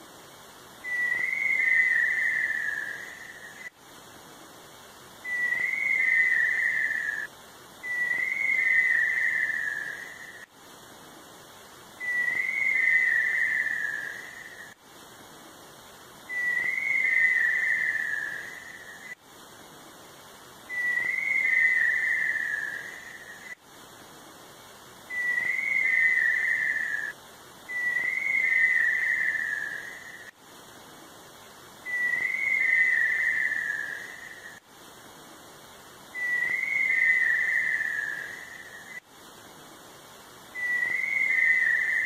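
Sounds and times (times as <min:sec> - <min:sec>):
bird long wavering whistle: 0:00.8 - 0:03.8, 0:05.2 - 0:10.5, 0:12.0 - 0:14.8, 0:16.3 - 0:19.2, 0:20.7 - 0:23.6, 0:25.1 - 0:30.4, 0:31.8 - 0:34.6, 0:36.1 - 0:39.0, 0:40.5 - 0:42.0.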